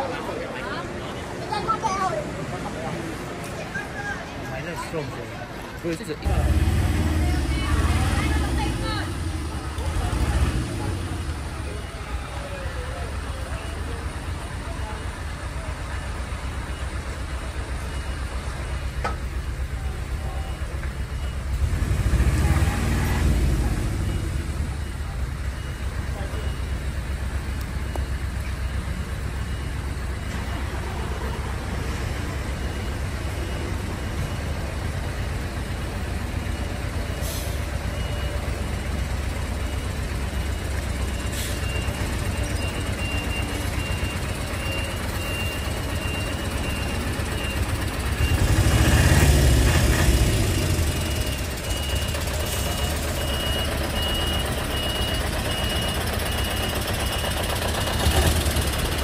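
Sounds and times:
truck engine rumble: 0:00.0 - 0:59.0
warning beeper beeping: 0:35.8 - 0:59.0.

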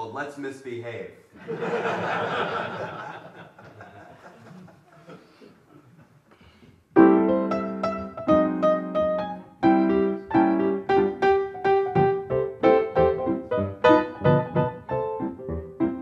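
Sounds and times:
grand piano playing chords: 0:07.0 - 0:16.0.

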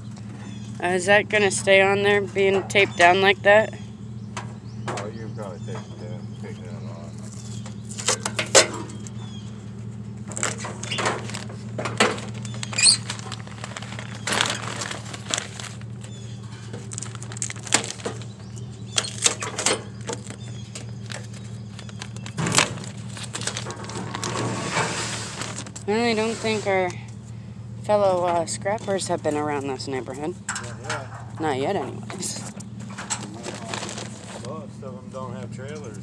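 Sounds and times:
low engine hum: 0:00.0 - 0:36.0
duct tape peeling: 0:10.2 - 0:26.6
paper rustling and crinkling: 0:10.2 - 0:26.6, 0:32.9 - 0:34.5.

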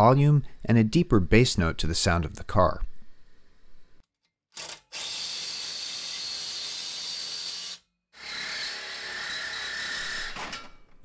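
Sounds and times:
reciprocating saw cutting metal pipe: 0:04.6 - 0:10.7.

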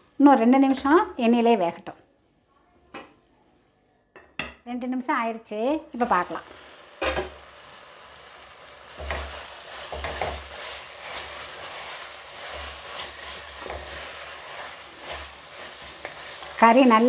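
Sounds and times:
meat sizzling in oil: 0:05.9 - 0:17.0
wooden spatula scraping pan: 0:08.9 - 0:17.0.

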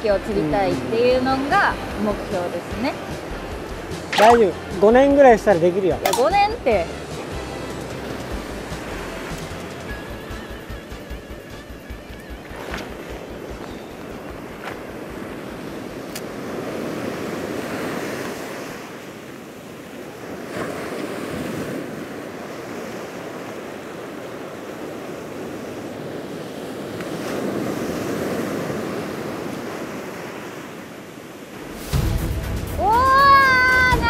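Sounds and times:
surf breaking on a beach: 0:12.3 - 0:32.2.

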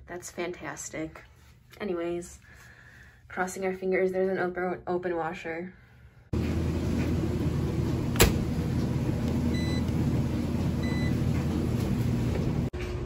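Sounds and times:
hum of laundry machines: 0:06.3 - 0:13.0
dryer door banging shut: 0:08.1 - 0:08.6
control panel beeps: 0:09.5 - 0:09.9, 0:10.8 - 0:11.2.

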